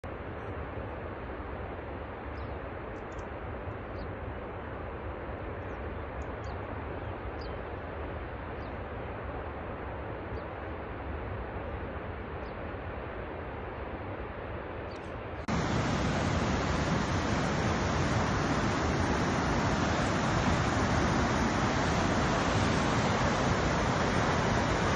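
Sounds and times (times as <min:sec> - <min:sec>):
waterfall rushing: 0:15.5 - 0:24.9.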